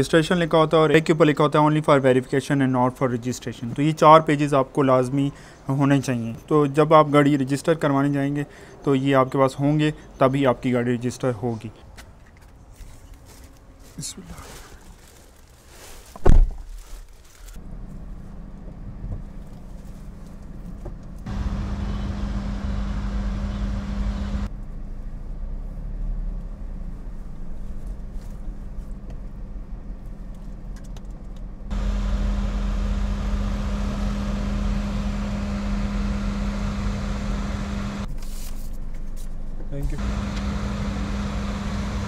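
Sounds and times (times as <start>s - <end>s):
road noise: 16.9s - 42.0s
car engine running: 17.6s - 24.8s, 31.7s - 38.1s, 40.0s - 42.0s.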